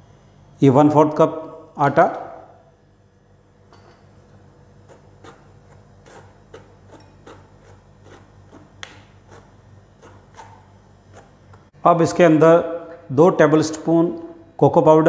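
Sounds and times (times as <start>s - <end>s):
spoon scraping metal sieve: 4.9s - 11.4s.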